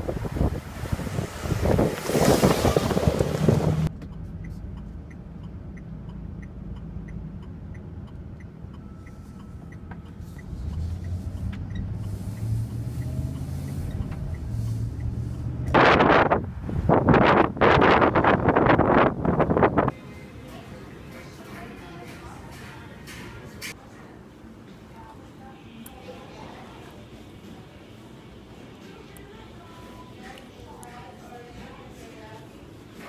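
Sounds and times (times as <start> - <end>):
wind buffeting microphone: 0.0 - 3.9, 15.6 - 19.9
turn signal ticking: 3.0 - 17.0.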